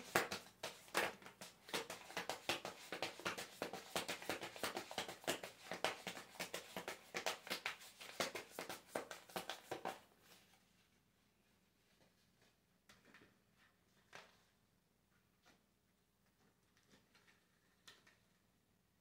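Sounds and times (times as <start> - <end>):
cards being shuffled: 0.0 - 10.0.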